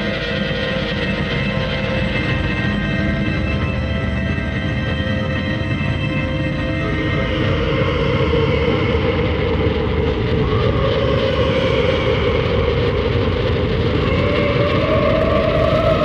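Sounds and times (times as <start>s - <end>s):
distorted droning metal music: 0.0s - 16.0s.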